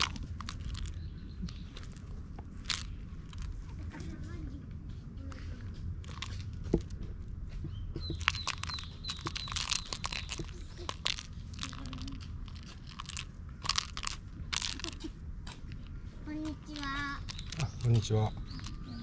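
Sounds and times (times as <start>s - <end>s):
cat toy crinkling: 0.0s - 3.8s, 6.0s - 6.9s, 8.0s - 15.1s, 16.7s - 19.0s.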